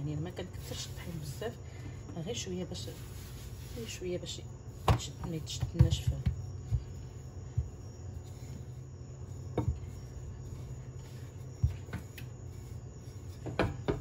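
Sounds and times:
rolling pin rolling dough: 0:00.0 - 0:14.0
steady low hum: 0:00.0 - 0:14.0
dull knocks of rolling pin: 0:04.8 - 0:07.9, 0:09.5 - 0:10.0, 0:13.3 - 0:14.0.

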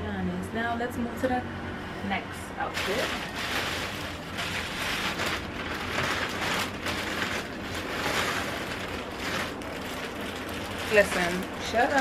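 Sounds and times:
plastic packaging rustling: 0:02.7 - 0:12.0.

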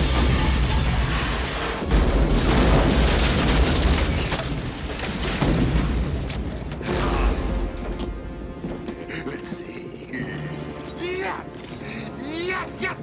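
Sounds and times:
explosions with rumble and crackle: 0:00.0 - 0:07.4.

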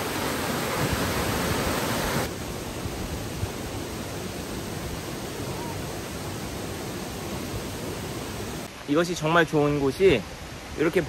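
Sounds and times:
stream water rushing: 0:00.0 - 0:11.0.

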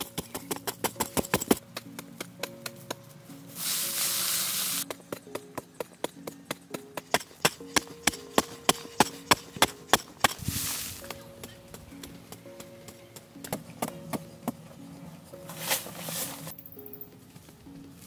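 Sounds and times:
background music with ticking beat: 0:00.0 - 0:18.0
soil scraped by shovel: 0:03.5 - 0:04.9, 0:09.6 - 0:11.2, 0:15.5 - 0:16.5.

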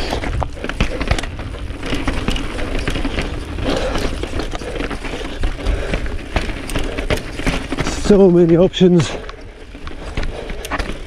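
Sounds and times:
bike rattling and knocking: 0:00.0 - 0:11.0
bike tyres rumbling on stone: 0:00.0 - 0:11.0.

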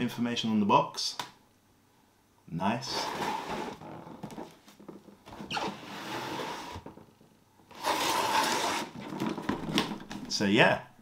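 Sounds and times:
cardboard box scraping and rubbing: 0:02.9 - 0:04.5, 0:05.4 - 0:06.9, 0:07.7 - 0:09.6.

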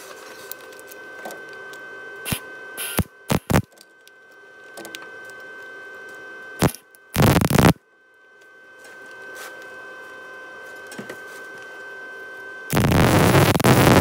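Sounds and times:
welding arc crackling: 0:02.3 - 0:03.7, 0:06.6 - 0:07.8, 0:12.7 - 0:14.0.

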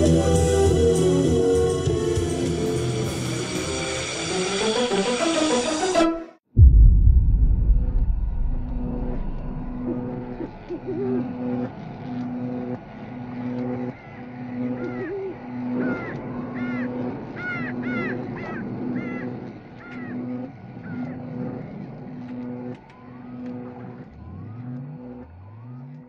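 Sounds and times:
low rising sweeps: 0:06.6 - 0:12.0
pulsing low hum: 0:06.6 - 0:19.8.

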